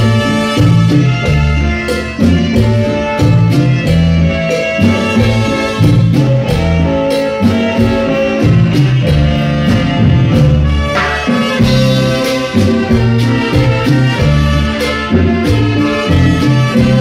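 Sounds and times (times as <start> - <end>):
hand drums: 0.0 - 17.0
low bass line: 0.0 - 17.0
orchestra playing: 0.0 - 17.0
saxophone: 0.0 - 17.0
trumpet: 0.0 - 17.0.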